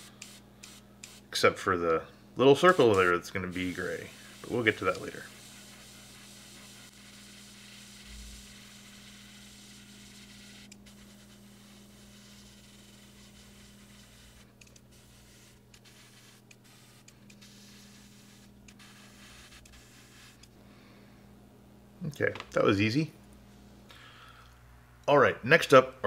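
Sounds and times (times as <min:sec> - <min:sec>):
airbrush spraying hiss: 0:00.0 - 0:01.3, 0:02.5 - 0:20.5
steady low hum: 0:00.0 - 0:26.0.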